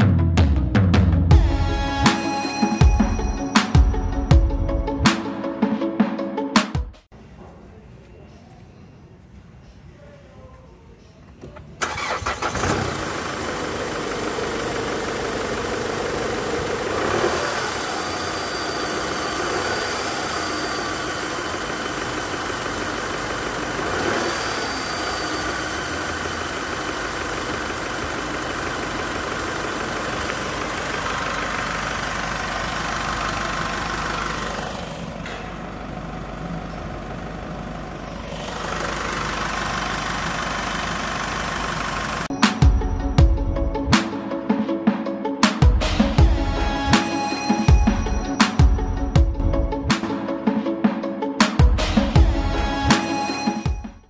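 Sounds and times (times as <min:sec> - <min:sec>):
diesel engine cranking and starting: 0:11.4 - 0:43.7
diesel engine idling: 0:11.8 - 0:43.6.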